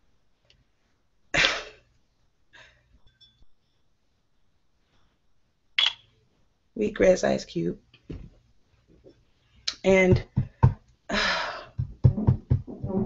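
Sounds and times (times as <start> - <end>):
person huffing breath: 11.1 - 11.8.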